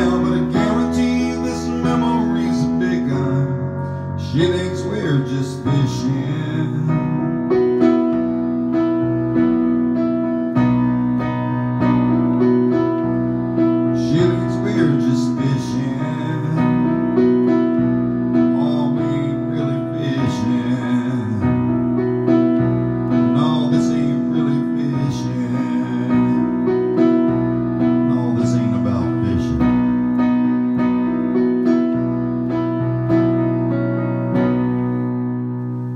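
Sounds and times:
man singing: 0.0s - 7.8s, 14.0s - 17.5s, 18.3s - 22.0s, 23.1s - 27.2s, 27.8s - 29.9s
keyboard piano chords: 0.0s - 35.9s.

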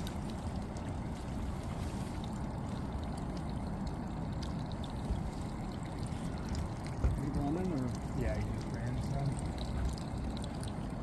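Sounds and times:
steady low rumble: 0.0s - 11.0s
water trickling and sloshing: 0.0s - 11.0s.

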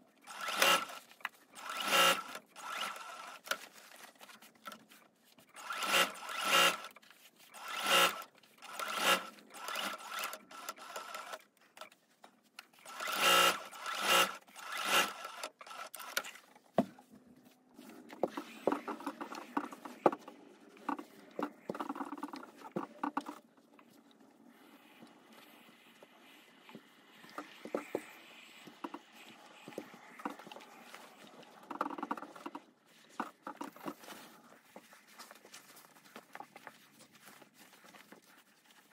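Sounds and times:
sewing machine stitching: 0.2s - 3.7s, 5.5s - 11.5s, 12.8s - 16.4s
iron moved over fabric: 0.2s - 11.4s, 12.8s - 16.4s.

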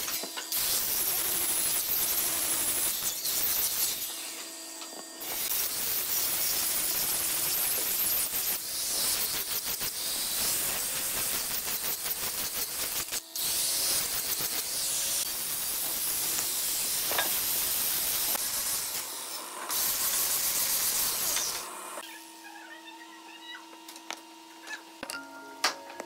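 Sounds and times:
angle grinder sanding wood: 5.2s - 22.0s.

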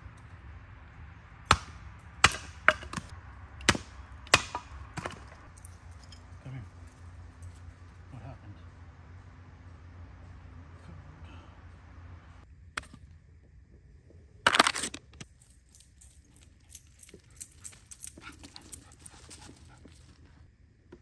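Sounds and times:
light metallic jingles: 5.2s - 8.7s, 15.2s - 20.5s.

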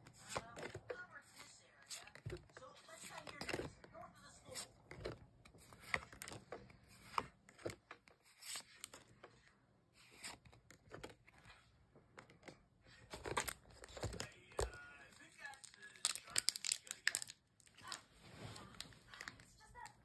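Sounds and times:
trading cards rubbing and clicking: 0.0s - 2.2s, 8.1s - 9.1s.

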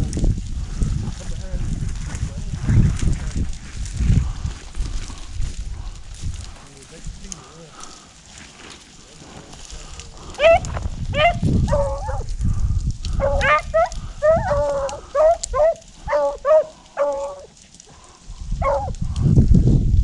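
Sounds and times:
walking through dry grass: 0.0s - 20.0s
hounds baying and yelping: 10.3s - 12.3s, 13.2s - 17.6s, 18.6s - 19.0s.

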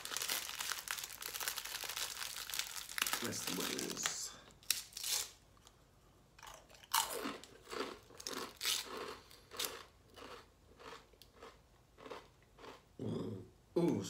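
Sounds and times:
crunchy chewing: 6.4s - 12.9s.

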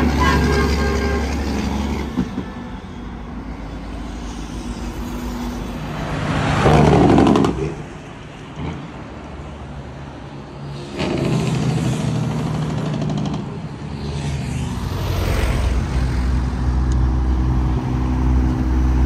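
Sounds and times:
vehicles passing on highway: 0.0s - 19.0s
low engine drone: 3.0s - 8.8s.

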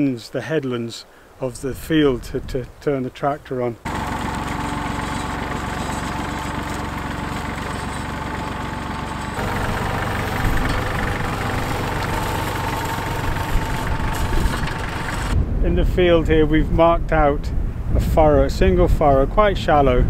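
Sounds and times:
tractor engine running: 3.9s - 15.4s.

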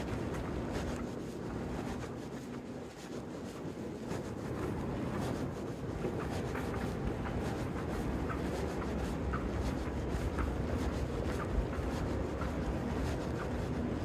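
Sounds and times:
footstep clicks: 0.0s - 14.0s
wind rumble on microphone: 0.0s - 14.0s.

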